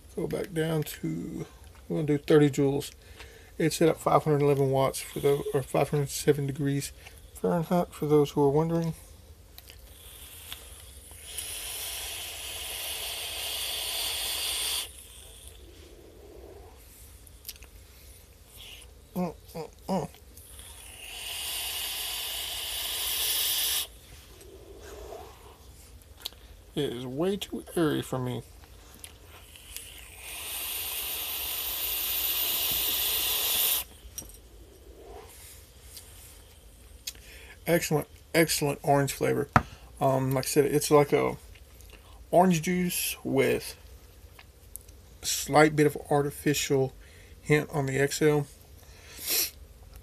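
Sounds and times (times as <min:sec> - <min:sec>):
air rushing through vaporizer: 0:09.9 - 0:16.8, 0:20.7 - 0:25.6, 0:29.8 - 0:34.0.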